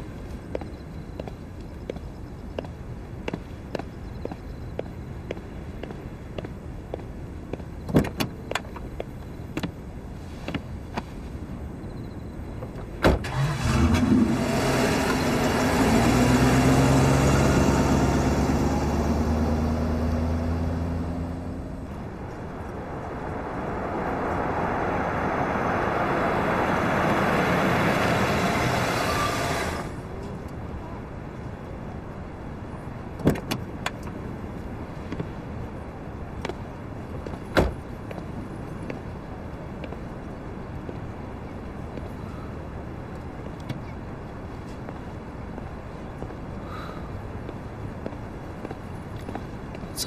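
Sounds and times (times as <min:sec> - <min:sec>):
car engine starting and running: 0:13.0 - 0:30.0
car door slamming: 0:37.5 - 0:37.8.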